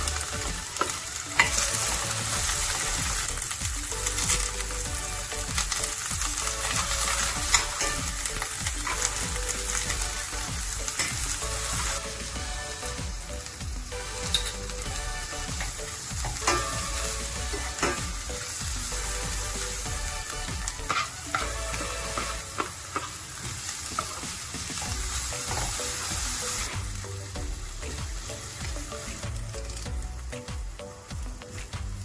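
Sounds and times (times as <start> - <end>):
onions sizzling in a pan: 0.0 - 32.0
metal spoon clinking on pan: 7.5 - 9.1, 14.3 - 14.6, 16.2 - 16.9.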